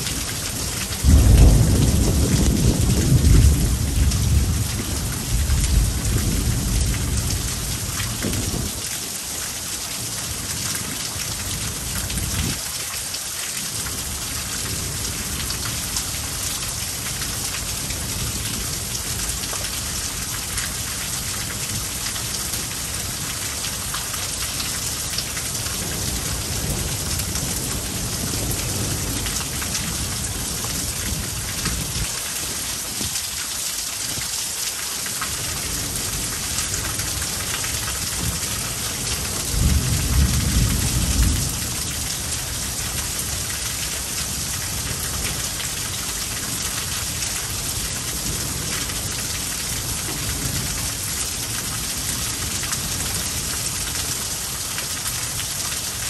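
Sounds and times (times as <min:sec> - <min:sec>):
heavy rain pouring: 0:00.0 - 0:56.0
thunder rumbling: 0:01.0 - 0:08.7, 0:39.4 - 0:41.9.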